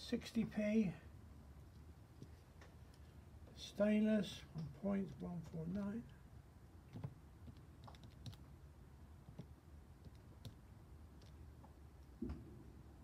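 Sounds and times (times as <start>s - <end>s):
low steady hum: 0.0s - 13.0s
calculator keys clicking: 5.1s - 6.0s, 6.9s - 8.4s.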